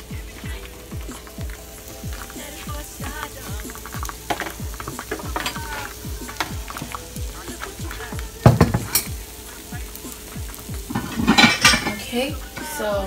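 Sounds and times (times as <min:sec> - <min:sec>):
background music with deep beat: 0:00.0 - 0:13.0
pancake sizzling in a pan: 0:00.0 - 0:13.0
utensil clatter: 0:00.2 - 0:09.2, 0:10.7 - 0:12.8.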